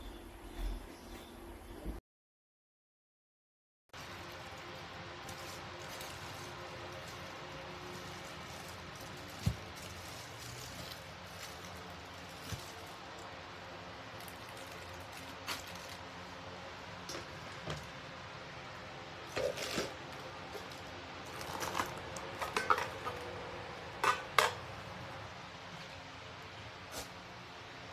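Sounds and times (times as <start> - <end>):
metal clanks and lid knocks: 24.0 - 24.6.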